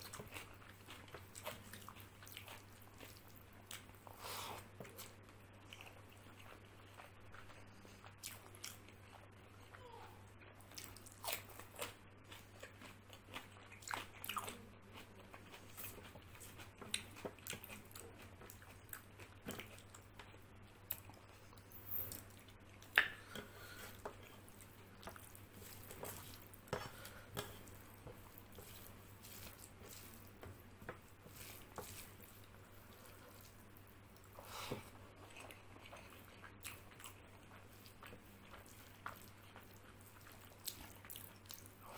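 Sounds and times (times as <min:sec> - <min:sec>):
chewing food: 0:00.0 - 0:41.9.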